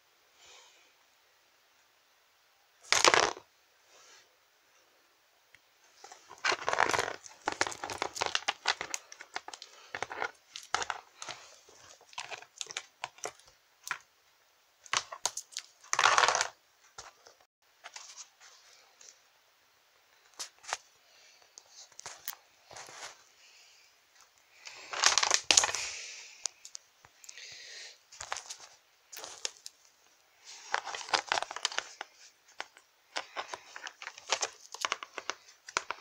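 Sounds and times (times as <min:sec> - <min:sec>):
plastic toys clicking and knocking: 0:06.4 - 0:14.0.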